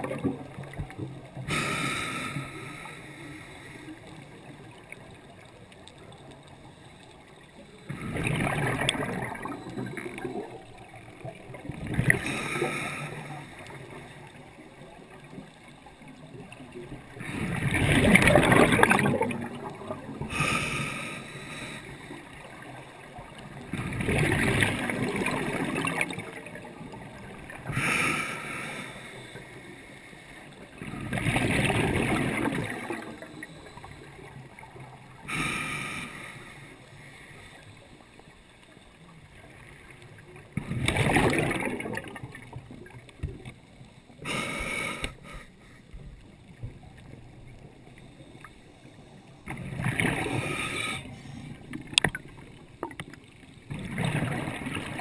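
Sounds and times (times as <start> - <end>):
diver exhaling bubbles: 7.9 - 10.5, 17.2 - 21.8, 30.8 - 33.5, 40.6 - 43.0, 49.5 - 53.0.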